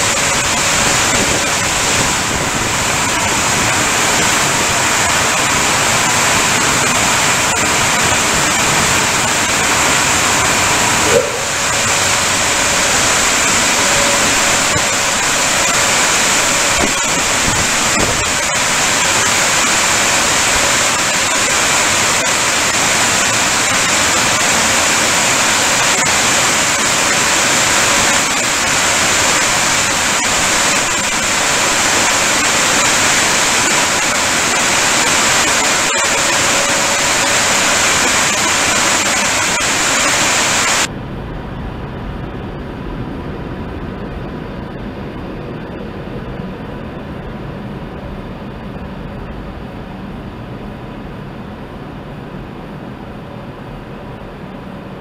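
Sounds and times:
spraying water rushing: 0.0s - 40.9s.

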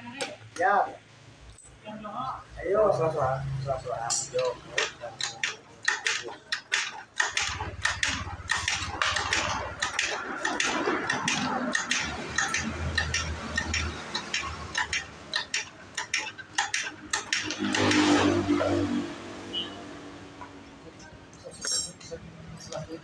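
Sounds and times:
metal engine parts clinking: 3.7s - 18.4s, 21.4s - 22.2s.

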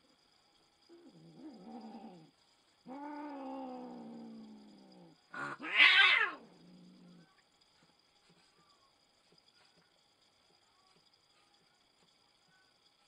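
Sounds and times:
cats yowling: 2.9s - 7.2s
cat screeching: 5.4s - 6.4s.

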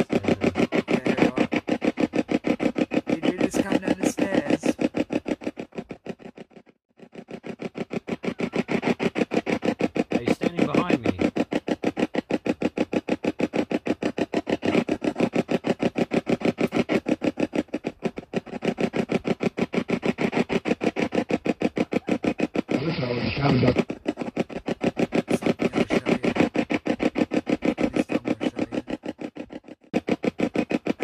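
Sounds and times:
radio static sweeping rapidly: 0.0s - 5.2s, 8.2s - 11.6s, 21.0s - 24.2s, 25.1s - 30.2s.

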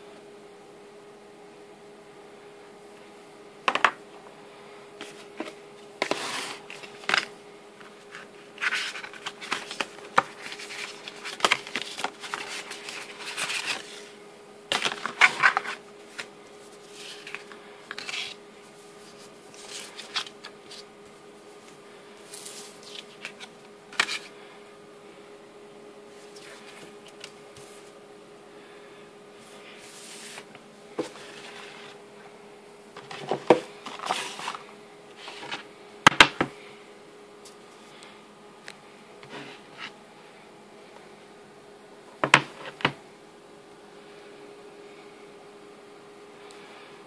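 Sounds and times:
faint steady hum: 0.0s - 47.0s
cardboard box and paper rustling: 5.0s - 18.4s, 19.0s - 20.9s, 33.0s - 35.7s.

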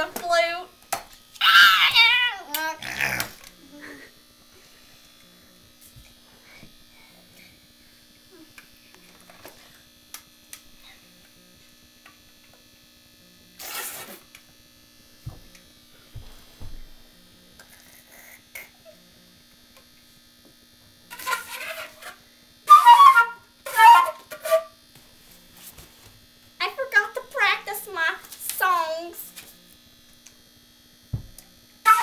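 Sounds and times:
breathy flute notes: 22.7s - 24.6s.

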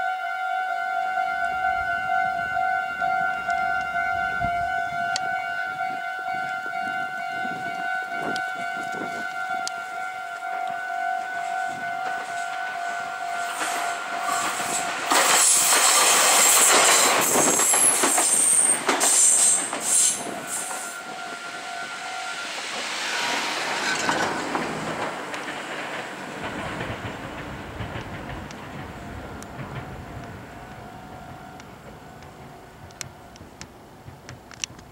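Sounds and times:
crossing warning alarm: 0.0s - 25.3s
electric train passing: 0.8s - 34.7s.

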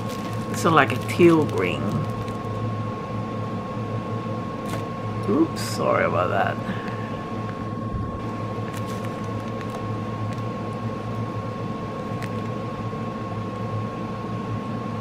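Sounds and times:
plastic bags clicking: 0.0s - 2.6s, 8.6s - 10.5s
fan hum with high whine: 0.0s - 15.0s.

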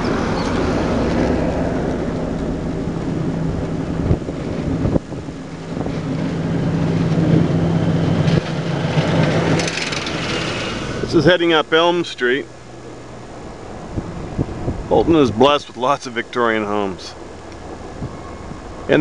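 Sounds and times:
car engine and road hum: 0.0s - 19.0s.

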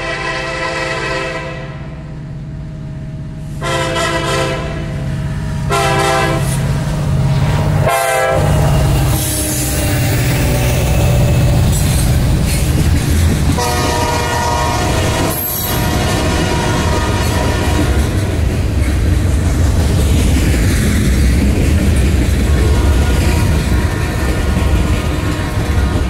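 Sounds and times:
locomotive horn blasts: 0.0s - 1.8s, 3.6s - 5.0s, 5.6s - 6.6s, 7.8s - 11.4s, 13.6s - 18.2s
low rumble of diesel locomotives: 0.0s - 26.0s
freight cars clattering on rails: 8.4s - 26.0s.

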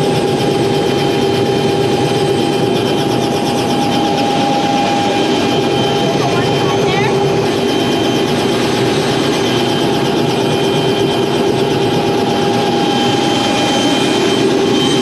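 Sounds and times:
helicopter turbine whine and rotor: 0.0s - 15.0s.

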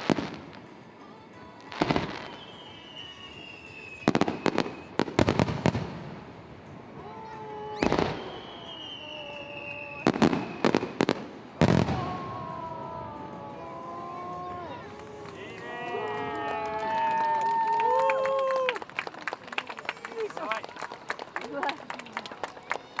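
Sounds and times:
fireworks bangs: 0.0s - 17.7s
fireworks whistles sliding downward: 1.8s - 5.3s, 7.2s - 18.8s.

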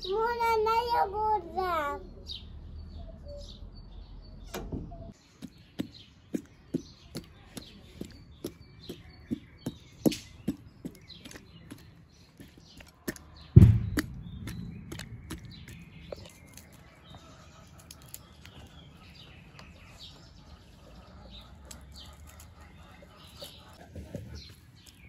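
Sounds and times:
birds chirping: 0.0s - 25.0s
heavy thud: 13.6s - 16.1s.

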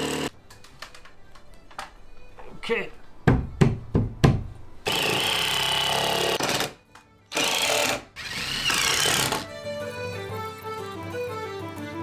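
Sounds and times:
power screwdriver driving screws: 7.3s - 9.4s.

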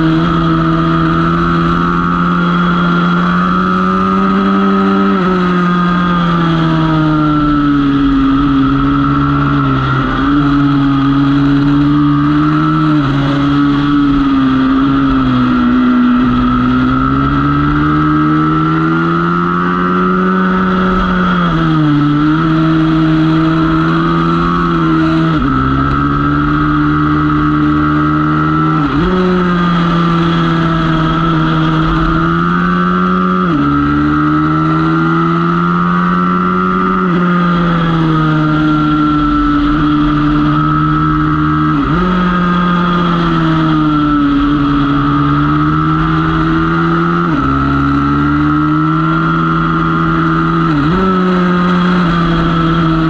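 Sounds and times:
motorbike engine revving through gears: 0.0s - 53.0s.

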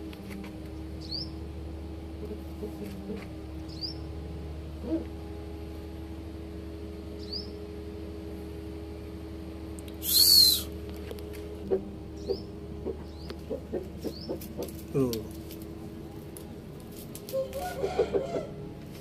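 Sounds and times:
steady low hum: 0.0s - 19.0s
faint bird chirps: 10.0s - 10.7s
shrill bird cry: 10.0s - 10.8s.

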